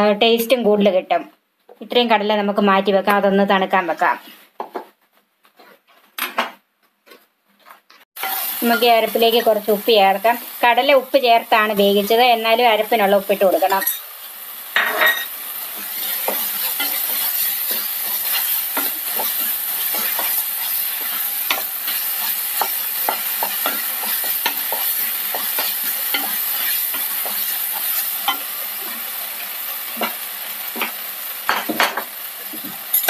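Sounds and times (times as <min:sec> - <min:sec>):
paste sizzling in oil: 0:08.2 - 0:33.0.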